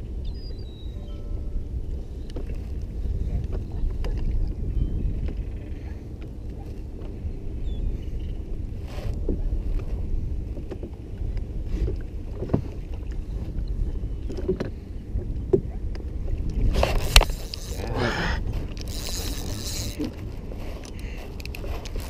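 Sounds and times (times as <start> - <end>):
wind buffeting the microphone: 0.0 - 22.0
water lapping against a boat: 8.8 - 22.0
brief wavering whir: 18.8 - 20.2.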